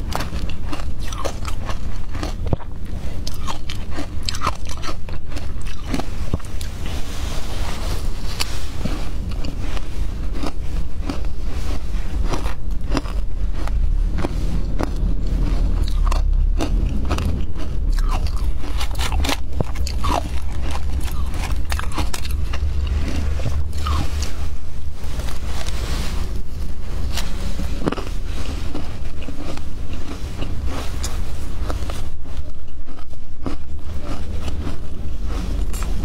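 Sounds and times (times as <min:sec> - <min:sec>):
crunching and chewing ice: 0:00.0 - 0:36.0
low rumble: 0:00.0 - 0:36.0.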